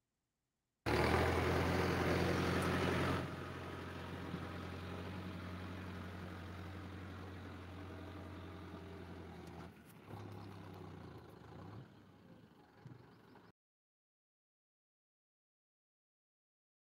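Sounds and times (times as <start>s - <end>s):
tractor engine idling: 0.9s - 13.5s.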